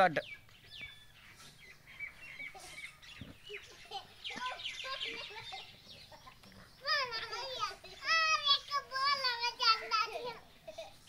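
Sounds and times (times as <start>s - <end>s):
bird chirps: 0.0s - 8.9s
chickens clucking: 0.5s - 8.2s.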